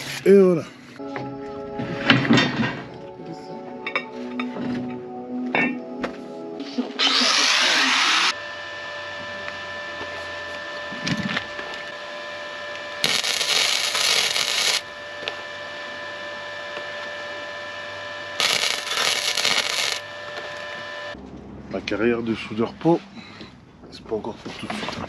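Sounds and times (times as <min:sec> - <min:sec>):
electric arc welding crackle: 0:00.0 - 0:00.4, 0:13.0 - 0:14.9, 0:18.4 - 0:20.8.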